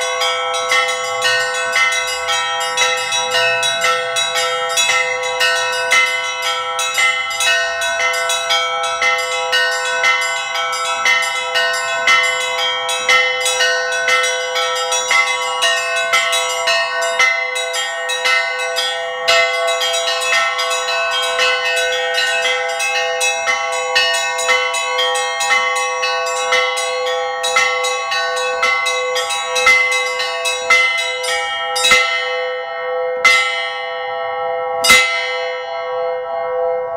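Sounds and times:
small church bells pealing: 0.0s - 36.9s.

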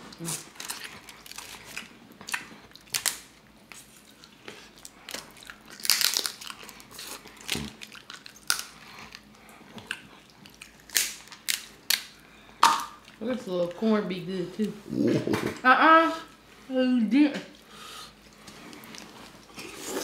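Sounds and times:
chewing and wet mouth sounds: 0.0s - 13.7s, 17.6s - 20.0s
crab shells cracking: 0.4s - 3.4s, 4.2s - 13.2s.

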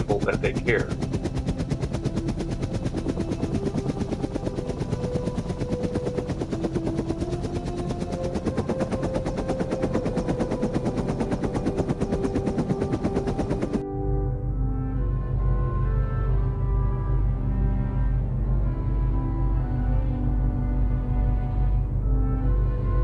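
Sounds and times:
helicopter rotor chop: 0.0s - 13.8s
wavering high whine: 0.0s - 23.0s.

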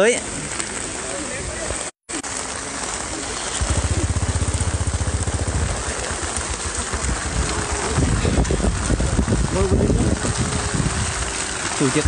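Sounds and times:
heavy rain hissing: 0.0s - 12.0s
small engine idling: 3.4s - 8.4s.

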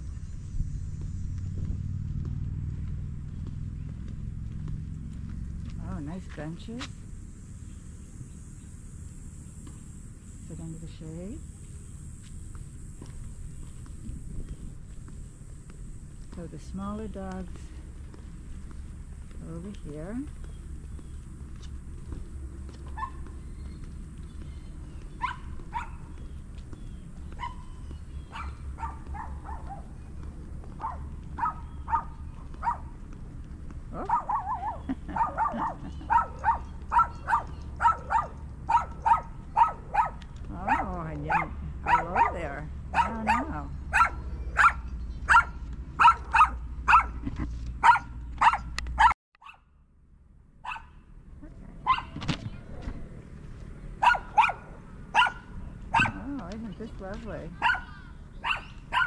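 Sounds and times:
steady low rumble: 0.0s - 49.2s, 49.8s - 59.0s
dog barking: 22.9s - 23.3s, 25.2s - 26.1s, 27.3s - 29.9s, 30.8s - 33.0s, 34.0s - 47.2s, 47.8s - 49.7s, 50.6s - 51.0s, 51.8s - 52.2s, 54.0s - 56.3s, 57.6s - 59.0s.

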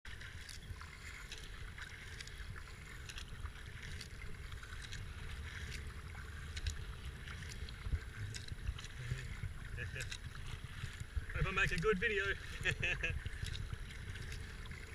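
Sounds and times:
paddle splashing in water: 0.1s - 14.9s
steady low rumble: 0.1s - 14.9s.

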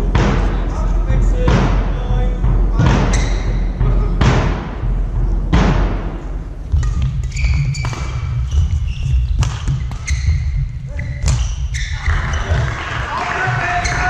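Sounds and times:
low hall rumble: 0.0s - 14.0s
rackets striking shuttlecocks: 5.5s - 14.0s
shoes squeaking on court: 6.7s - 14.0s.

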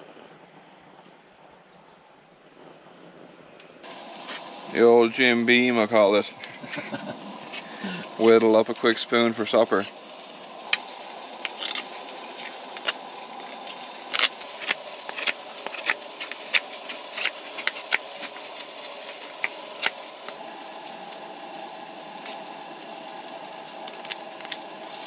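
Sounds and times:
background hiss: 0.0s - 25.0s
knife scraping wood: 11.4s - 20.4s.

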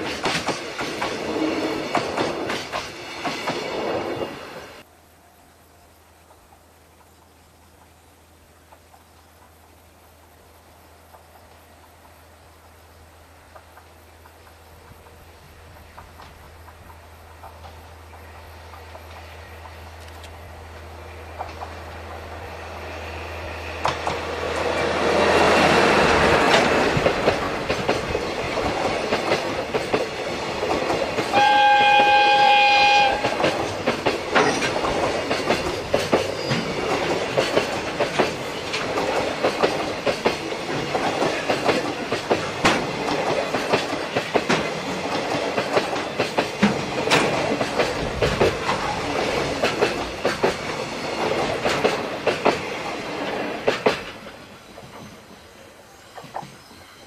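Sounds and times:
train wheels clacking on rail joints: 0.0s - 4.8s, 13.4s - 20.6s, 21.2s - 22.3s, 23.7s - 55.5s
train horn blast: 31.3s - 33.5s.

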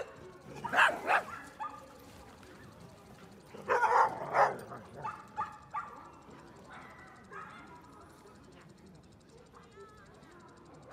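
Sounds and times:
dog barking: 0.0s - 2.0s, 3.6s - 7.9s.

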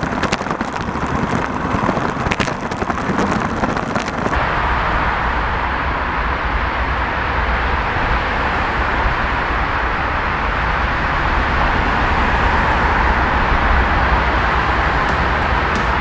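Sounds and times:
irregular crackling taps: 15.1s - 16.0s.

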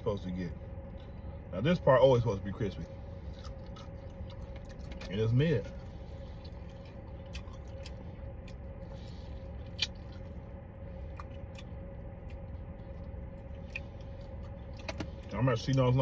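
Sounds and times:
low car interior hum: 0.0s - 16.0s
person chewing chicken wing: 3.3s - 5.1s, 5.8s - 10.4s, 11.0s - 15.3s.

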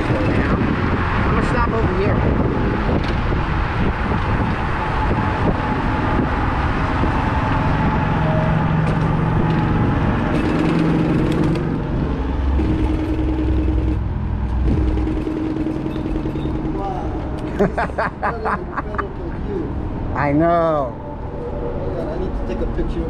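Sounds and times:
wind: 0.0s - 23.0s
rattling and clicking: 8.8s - 12.0s, 12.6s - 14.0s, 14.6s - 16.8s.

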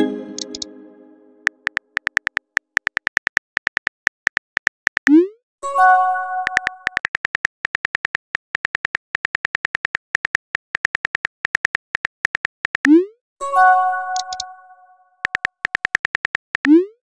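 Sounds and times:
phone keyboard key clicks: 1.5s - 5.1s, 6.5s - 12.9s, 14.2s - 14.5s, 15.2s - 16.7s.

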